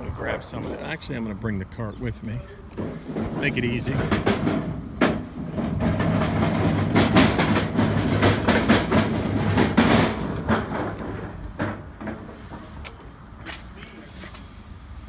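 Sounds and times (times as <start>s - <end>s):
metal cart rattling on asphalt: 2.4s - 14.2s.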